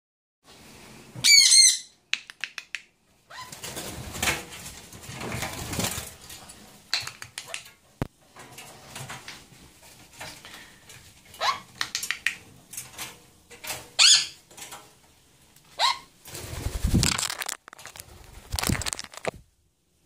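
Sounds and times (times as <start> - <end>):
birds flapping wings in cage: 3.5 - 7.8, 16.2 - 19.3
cage clicks and taps: 11.7 - 13.8.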